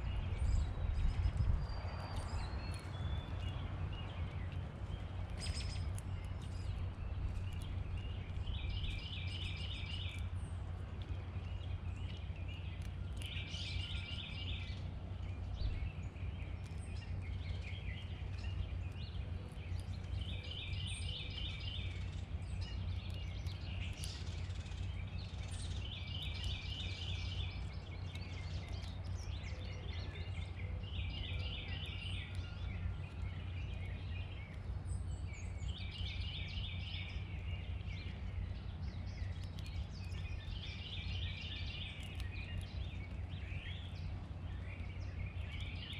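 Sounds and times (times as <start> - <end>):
low background rumble: 0.0 - 45.9.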